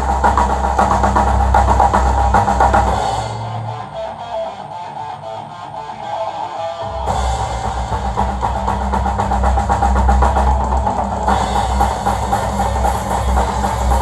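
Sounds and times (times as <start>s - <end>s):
heavy bass drum: 0.0s - 3.9s, 6.9s - 14.0s
rock backing track: 0.0s - 14.0s
acoustic drum kit playing: 7.0s - 14.0s.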